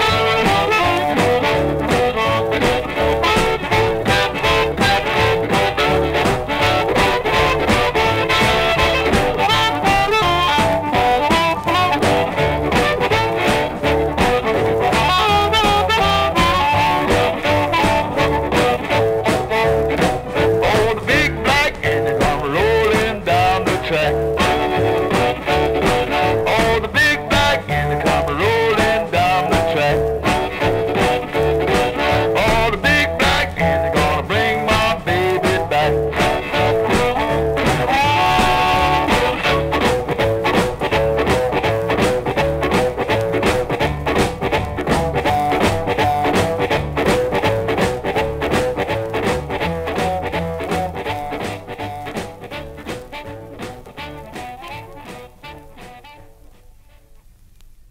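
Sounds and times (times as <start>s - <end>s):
wailing harmonica: 0.0s - 22.3s, 24.0s - 40.0s
rhythm section: 0.0s - 57.5s
blues band playing: 0.0s - 57.6s
guitar: 0.0s - 57.9s.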